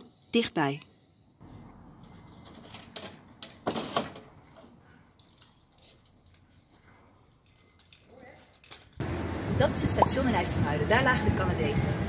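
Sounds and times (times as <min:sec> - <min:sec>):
rattling jangling clicks: 0:05.1 - 0:06.5, 0:07.3 - 0:09.0.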